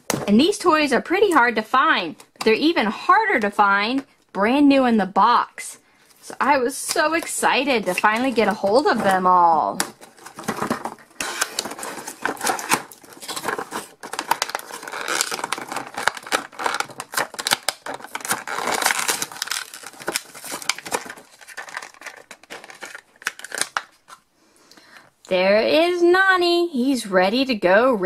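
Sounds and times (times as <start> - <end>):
plastic wrapping crinkling: 6.9 - 24.3.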